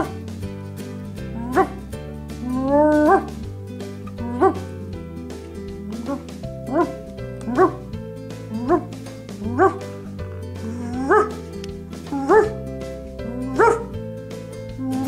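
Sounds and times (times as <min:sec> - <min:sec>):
background music: 0:00.0 - 0:15.0
small dog yipping: 0:06.1 - 0:07.8, 0:09.5 - 0:09.8, 0:10.9 - 0:11.4, 0:12.2 - 0:12.6, 0:13.5 - 0:13.8.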